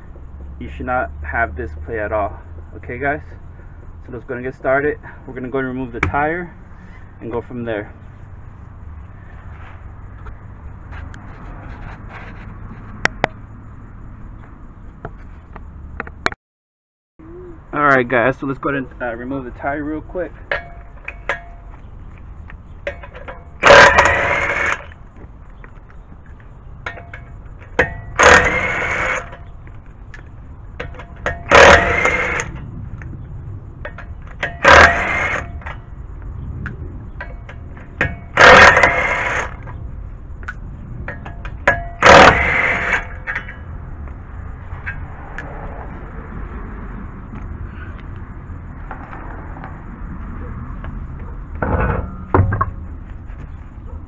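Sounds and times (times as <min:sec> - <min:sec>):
impact wrench whirring: 0:23.6 - 0:24.9, 0:28.2 - 0:29.4, 0:31.5 - 0:32.5, 0:34.4 - 0:35.7, 0:38.4 - 0:39.6, 0:42.0 - 0:43.2.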